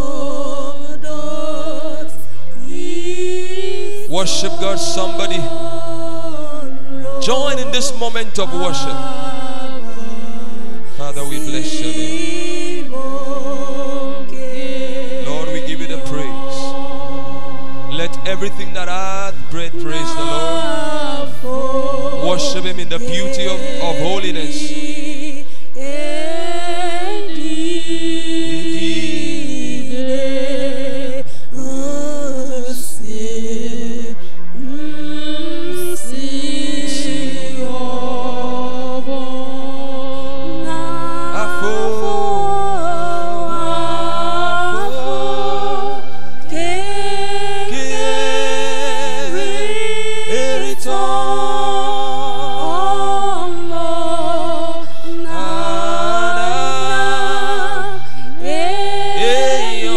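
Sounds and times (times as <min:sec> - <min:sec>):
sustained low accompaniment chords: 0:00.0 - 0:59.9
man singing into a microphone: 0:04.0 - 0:05.7, 0:07.0 - 0:09.4, 0:11.0 - 0:13.0, 0:15.1 - 0:16.8, 0:17.9 - 0:21.6, 0:22.2 - 0:26.0, 0:40.6 - 0:43.0, 0:47.6 - 0:51.2, 0:59.2 - 0:59.9
deep bass note: 0:15.2 - 0:24.8.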